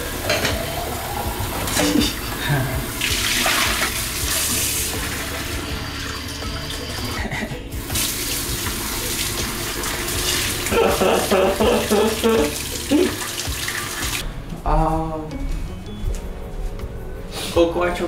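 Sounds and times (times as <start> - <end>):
dishes rinsed: 0.0 - 14.2.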